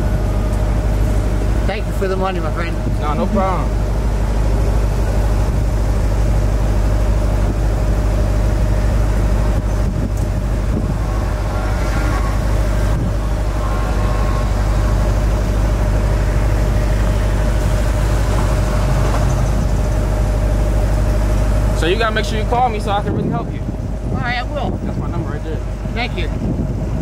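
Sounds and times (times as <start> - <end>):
car engine idling: 0.0 - 27.0.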